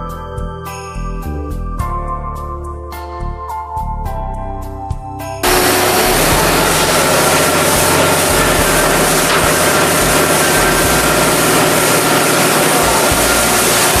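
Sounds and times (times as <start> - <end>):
machinery running: 5.4 - 14.0.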